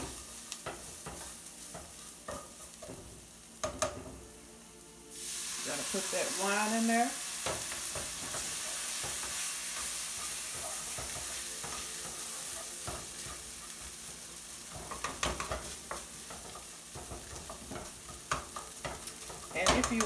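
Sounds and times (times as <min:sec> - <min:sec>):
food sizzling in skillet: 0:00.0 - 0:20.0.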